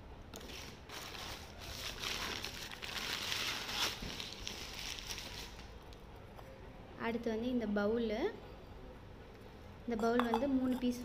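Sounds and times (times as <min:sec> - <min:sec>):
newspaper crinkling: 0:00.4 - 0:05.7.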